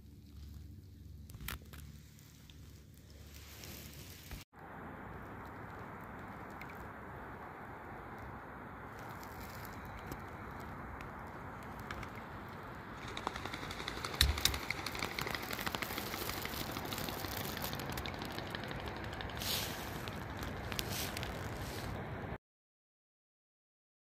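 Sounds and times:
water dripping and splashing off paddle: 0:14.2 - 0:21.4.

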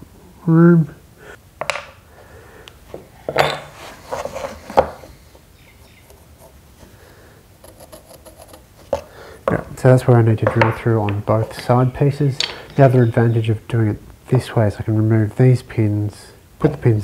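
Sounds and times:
wooden parts knocking and clicking: 0:01.6 - 0:02.0, 0:07.6 - 0:09.8, 0:10.4 - 0:11.7, 0:12.4 - 0:12.8
pencil scratching: 0:06.0 - 0:06.6, 0:07.6 - 0:09.1.

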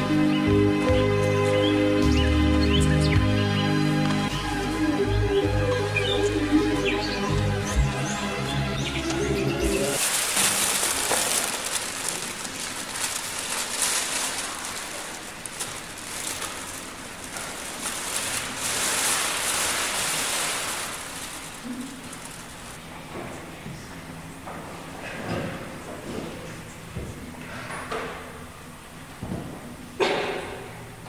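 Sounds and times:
plastic bags rustling and crinkling: 0:09.9 - 0:23.6
bundle dragged across floor: 0:10.0 - 0:22.9.

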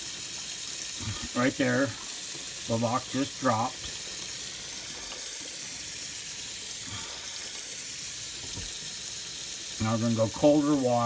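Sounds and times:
tap water splashing on metal lid: 0:08.3 - 0:09.0.

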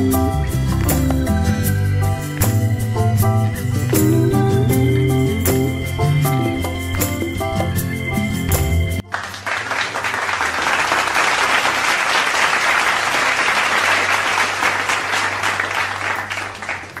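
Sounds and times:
background music: 0:00.0 - 0:09.9
applause: 0:00.4 - 0:01.1, 0:09.0 - 0:17.0.

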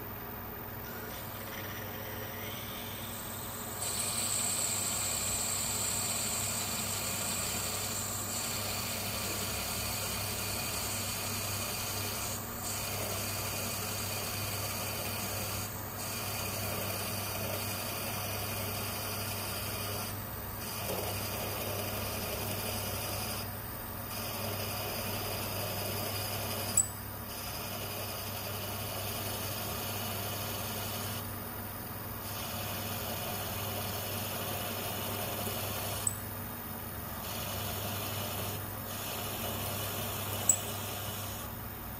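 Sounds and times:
drill cutting metal with scraping hiss: 0:02.2 - 0:23.5.

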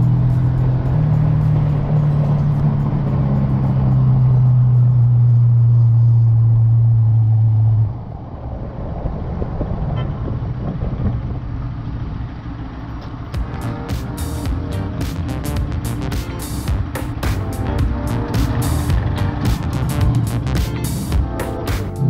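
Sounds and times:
road noise: 0:00.0 - 0:22.0
wind noise: 0:07.0 - 0:12.4
motorcycle engine droning: 0:09.5 - 0:22.0.

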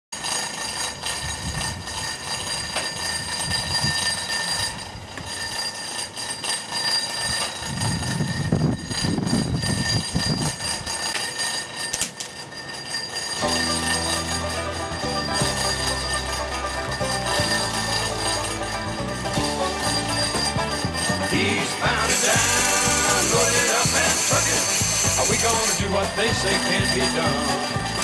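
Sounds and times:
tank truck mechanical hum: 0:10.5 - 0:28.0
high whining tones: 0:12.0 - 0:28.0.

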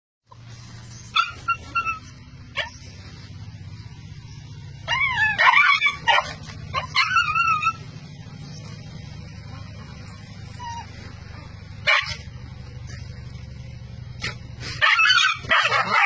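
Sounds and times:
dog yelping and whimpering: 0:01.2 - 0:02.7, 0:04.9 - 0:07.9, 0:10.5 - 0:11.0, 0:14.8 - 0:16.0.

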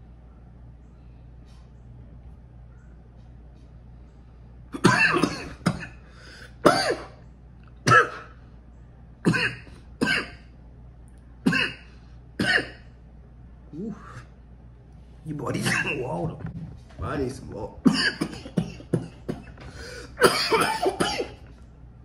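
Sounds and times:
man coughing hard: 0:04.8 - 0:06.0, 0:06.6 - 0:07.2, 0:07.8 - 0:08.4, 0:09.2 - 0:10.5, 0:11.4 - 0:12.8, 0:15.6 - 0:16.2, 0:17.8 - 0:21.4.

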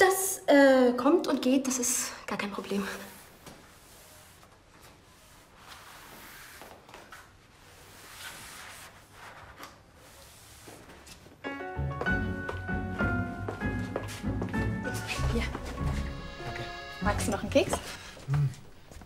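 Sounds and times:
eraser wiping a chalkboard: 0:03.0 - 0:11.3.

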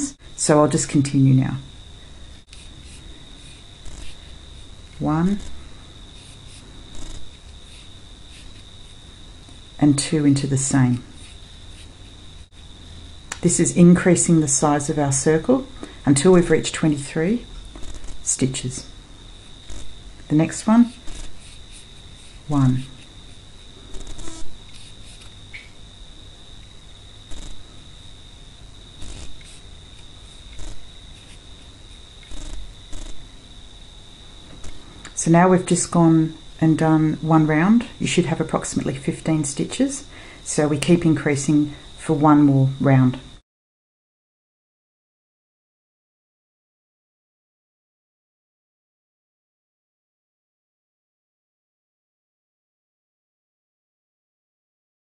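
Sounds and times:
high cricket-like trill: 0:00.0 - 0:40.9.

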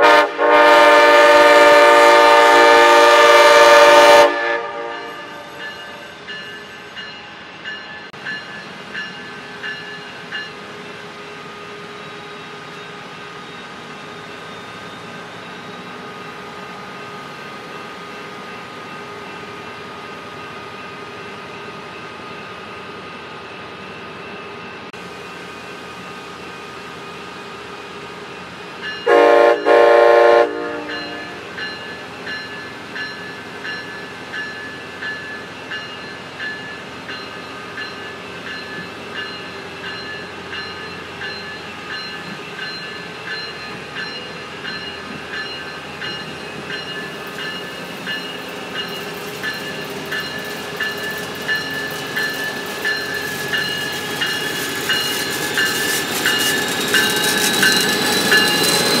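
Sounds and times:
locomotive horn blasts: 0:00.0 - 0:05.5, 0:29.1 - 0:31.4
train wheels rumbling on rail: 0:00.0 - 0:59.0.

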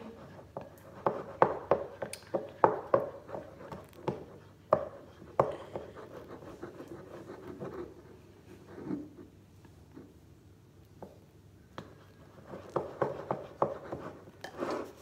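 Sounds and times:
spoon scraping bowl: 0:12.4 - 0:15.0.

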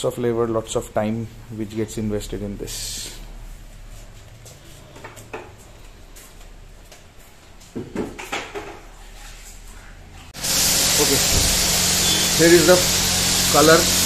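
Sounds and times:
spray gun hissing: 0:10.4 - 0:14.0.

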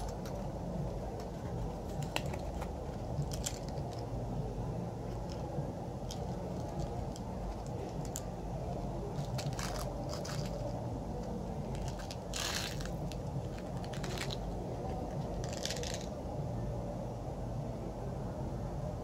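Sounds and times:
cardboard box crackling: 0:00.0 - 0:04.0, 0:09.1 - 0:10.8, 0:11.6 - 0:16.1
low background hum: 0:00.0 - 0:19.0
candies rattling into palm: 0:09.1 - 0:10.7, 0:11.7 - 0:16.1.

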